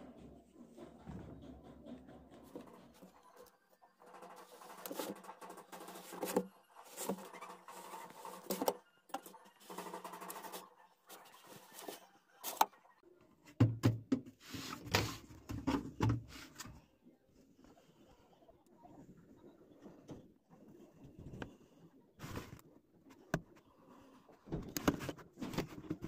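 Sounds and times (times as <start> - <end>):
plastic knocks and thuds: 13.6 - 14.3.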